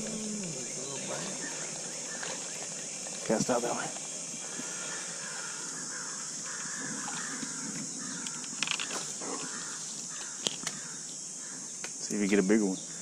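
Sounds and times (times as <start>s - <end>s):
rasping buzz: 0.0s - 3.6s
high-pitched insect drone: 0.0s - 13.0s.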